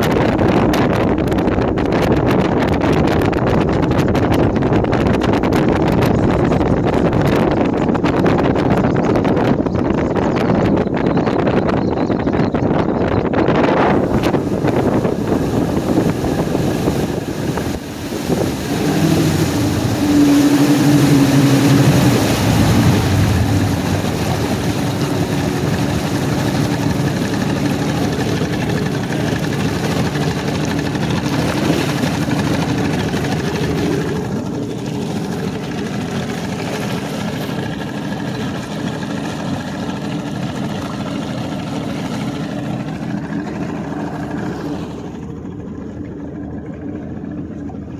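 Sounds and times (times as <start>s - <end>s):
outboard motor running: 0.0s - 47.9s
water rushing past hull: 13.4s - 47.9s.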